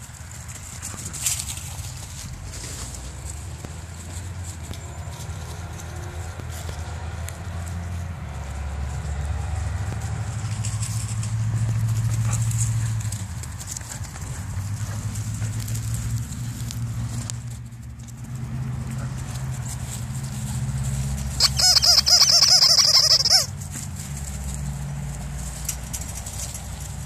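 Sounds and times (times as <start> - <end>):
puppy yelping: 21.4 - 23.5.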